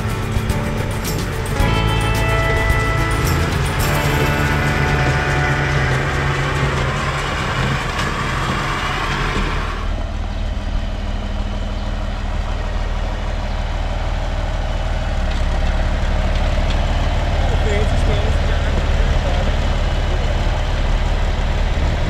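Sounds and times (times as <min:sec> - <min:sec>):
tractor engine idling: 0:00.0 - 0:22.0
tractor engine running: 0:00.0 - 0:22.0.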